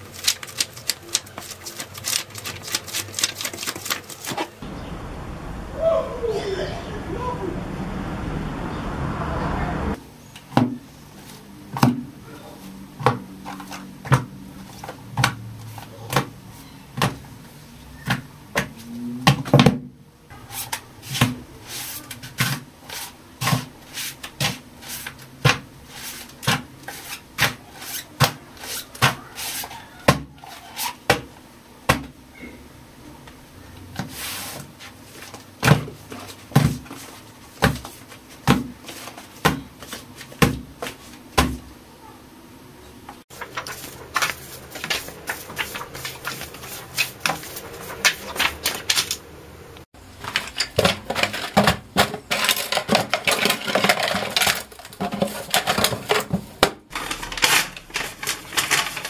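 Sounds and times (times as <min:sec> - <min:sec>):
books slapped onto a stack: 0:11.8 - 0:12.1, 0:35.6 - 0:37.0, 0:37.6 - 0:41.7.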